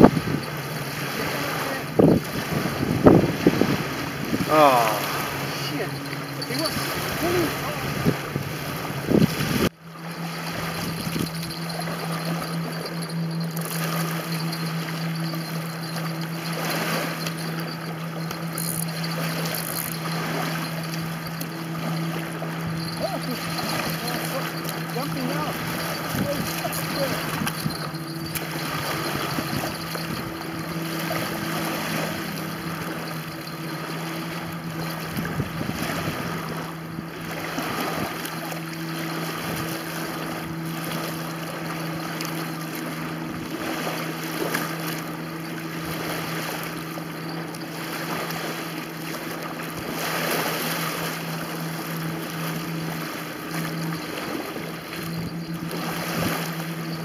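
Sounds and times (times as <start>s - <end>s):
wind on microphone: 0.0s - 41.0s, 53.0s - 57.0s
low hum: 0.0s - 49.5s, 50.8s - 57.0s
small waves lapping: 0.0s - 57.0s.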